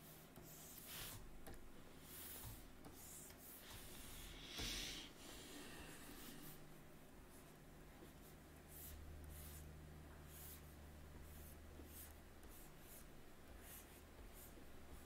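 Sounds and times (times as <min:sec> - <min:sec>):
low steady hum: 0:00.0 - 0:15.0
stylus scratching on tablet: 0:02.0 - 0:04.3, 0:08.1 - 0:15.0.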